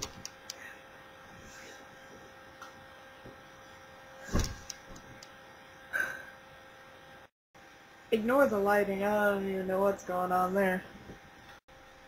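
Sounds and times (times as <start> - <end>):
electrical hum: 0.0 - 12.0
thump: 4.3 - 4.6.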